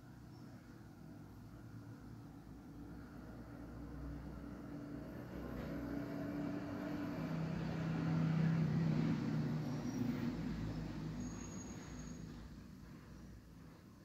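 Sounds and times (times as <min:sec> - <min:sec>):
vehicle engine hum: 0:02.6 - 0:13.4.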